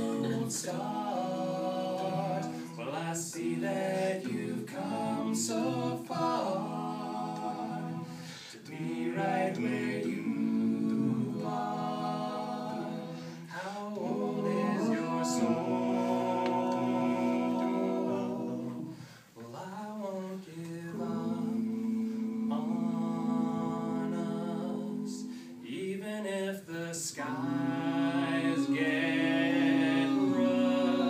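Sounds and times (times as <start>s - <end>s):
male a cappella group singing: 0.0s - 31.0s.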